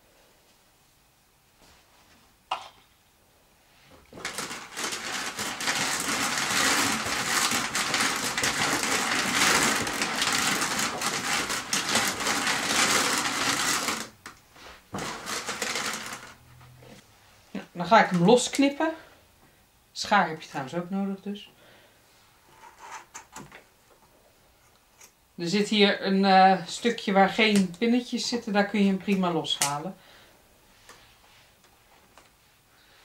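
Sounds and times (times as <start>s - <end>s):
drum carder scratchy whirring: 4.2s - 14.2s.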